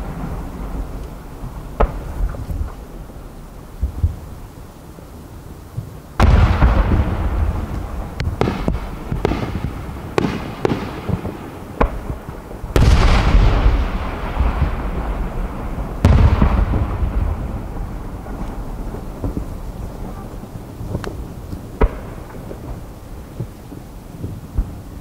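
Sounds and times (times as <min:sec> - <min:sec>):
firework booms with echo: 0:00.0 - 0:02.9, 0:05.8 - 0:23.5
sharp firework bangs: 0:06.2 - 0:21.2.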